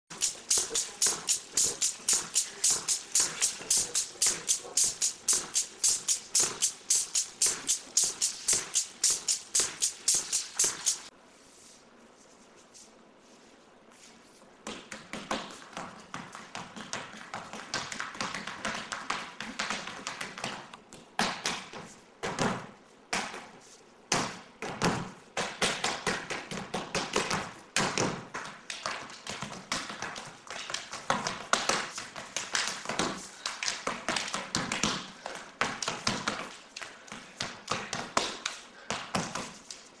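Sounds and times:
rapid tapping and clicking: 0:00.1 - 0:11.1.

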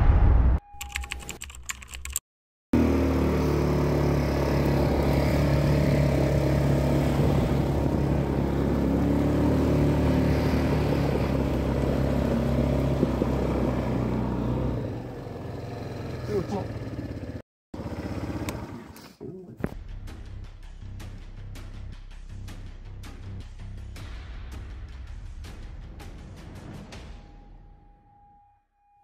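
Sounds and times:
vehicle engine running: 0:02.8 - 0:19.0.

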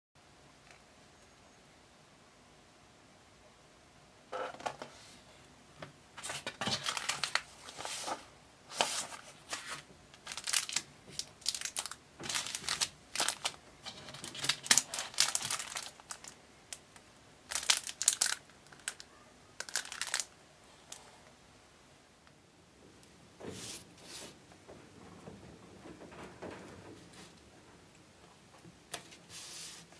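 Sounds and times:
plastic packaging crinkling: 0:06.2 - 0:20.4.

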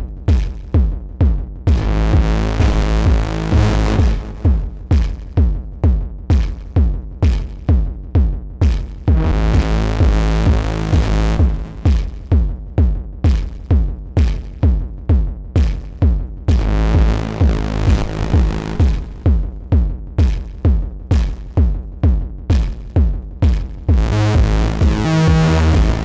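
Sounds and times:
deep steady bass: 0:00.0 - 0:26.0
percussive synthesizer notes: 0:00.0 - 0:26.0
sustained buzzing synth chord: 0:24.0 - 0:26.0.

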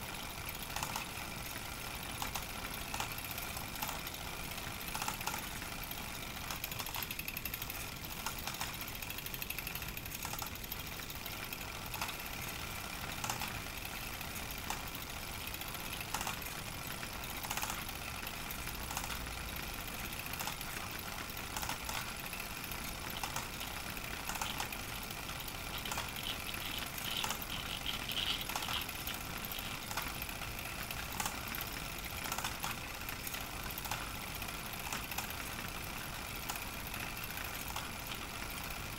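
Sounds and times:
hand-crank projector rattling: 0:19.8 - 0:35.6.

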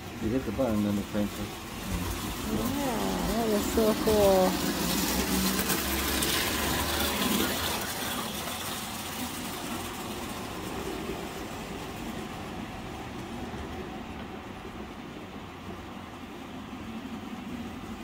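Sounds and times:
toy trains rolling on tracks: 0:00.0 - 0:15.3.

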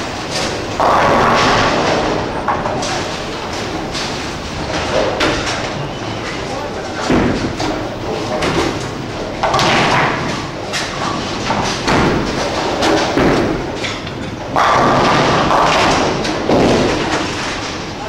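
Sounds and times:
bowling ball rolling: 0:00.0 - 0:18.0
bowling pins crashing: 0:00.0 - 0:18.0
bowling ball thudding onto lane: 0:07.1 - 0:17.4.

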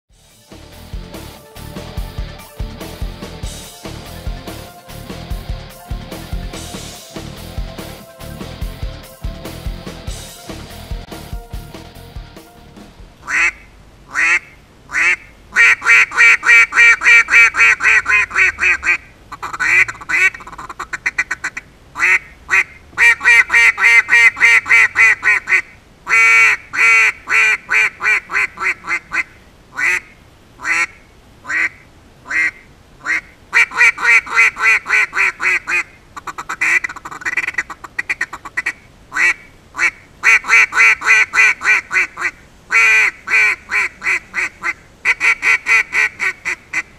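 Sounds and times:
duck call quacks: 0:13.2 - 0:46.9.

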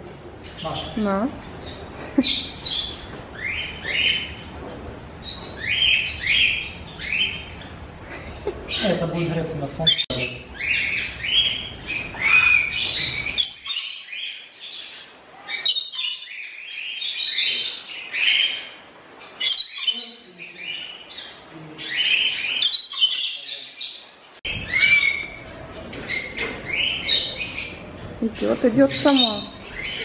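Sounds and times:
parrots squawking and whistling: 0:09.9 - 0:23.4, 0:24.5 - 0:27.9.

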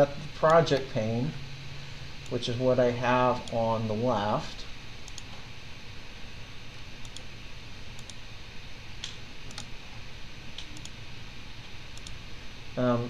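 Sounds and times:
low room hum: 0:00.0 - 0:13.0
computer mouse clicks: 0:05.0 - 0:05.3, 0:07.0 - 0:07.3, 0:08.0 - 0:08.2, 0:09.0 - 0:09.7, 0:10.6 - 0:11.0, 0:12.0 - 0:12.2.

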